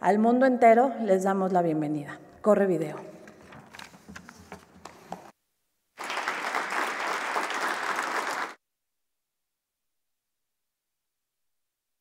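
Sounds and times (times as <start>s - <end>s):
crowd applause: 6.0s - 8.6s.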